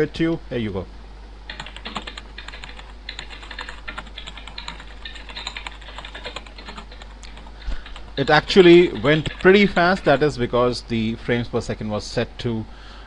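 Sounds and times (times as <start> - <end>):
keyboard typing clicks: 1.5 - 10.2.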